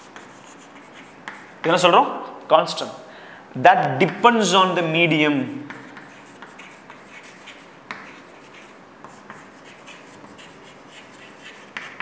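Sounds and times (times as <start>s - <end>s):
chalk scratching and tapping on chalkboard: 0.0s - 1.8s, 5.7s - 12.0s.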